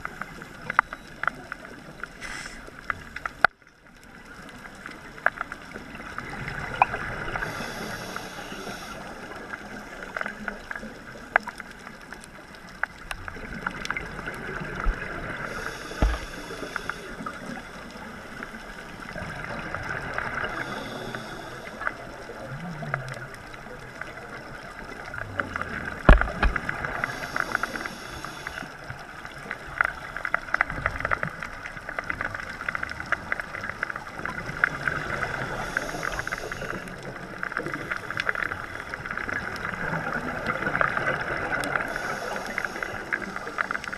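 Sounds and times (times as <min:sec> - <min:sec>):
underwater water noise: 0:00.0 - 0:43.9
regulator breath hiss: 0:02.2 - 0:02.7, 0:07.4 - 0:09.2, 0:15.4 - 0:17.3, 0:20.6 - 0:21.9, 0:26.9 - 0:28.8, 0:35.3 - 0:36.9, 0:41.8 - 0:43.9.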